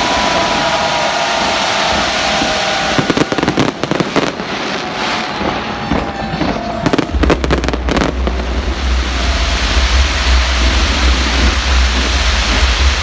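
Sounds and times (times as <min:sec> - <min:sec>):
fireworks crackling bangs: 0:00.0 - 0:13.0
steady hiss: 0:00.0 - 0:13.0
low rumble: 0:03.8 - 0:13.0.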